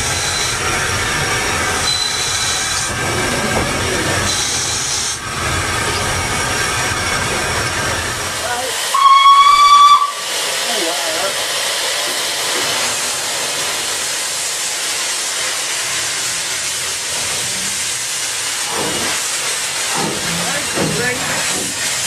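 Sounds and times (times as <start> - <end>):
hiss of steam: 8.3 - 22.0
steam locomotive whistle: 8.9 - 10.3.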